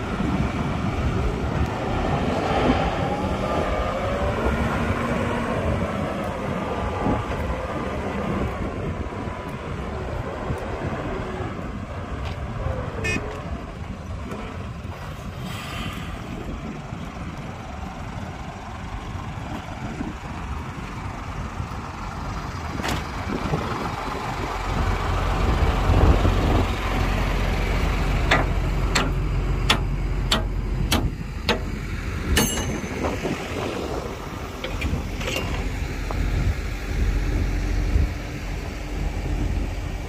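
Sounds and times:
heavy machinery diesel engines: 0.0s - 40.0s
sharp metallic clanks: 28.3s - 33.4s, 34.6s - 35.8s.

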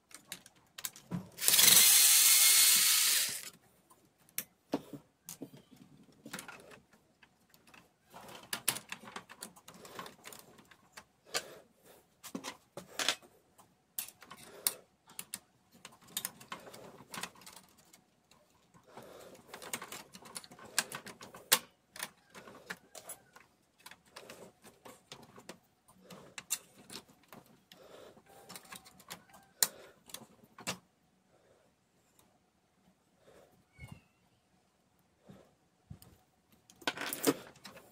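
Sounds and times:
plastic gears clicking and clattering: 0.0s - 3.6s, 6.1s - 11.4s, 14.0s - 27.6s.

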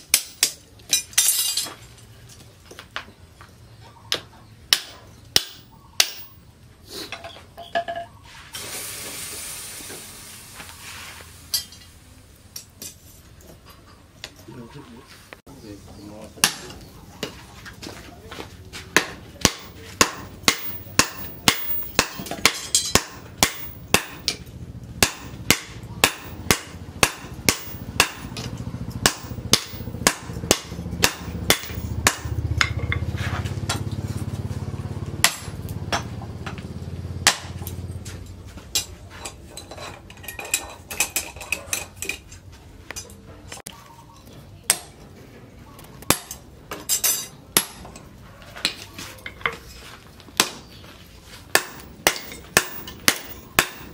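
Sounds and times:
hammer striking steel on anvil: 0.0s - 1.8s, 4.7s - 6.4s, 19.0s - 33.8s, 35.2s - 36.1s, 46.1s - 48.0s, 51.5s - 53.9s.

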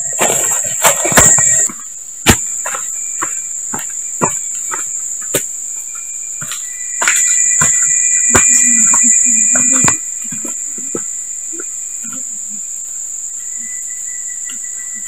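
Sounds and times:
footsteps on dry leaves: 0.0s - 5.6s, 6.4s - 10.7s
insects droning: 0.0s - 15.0s.

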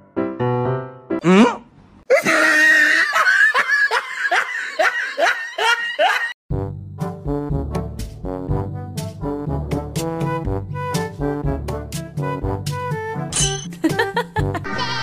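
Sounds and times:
person laughing: 1.2s - 6.4s, 13.7s - 15.0s
brass-led tune: 6.5s - 13.3s.

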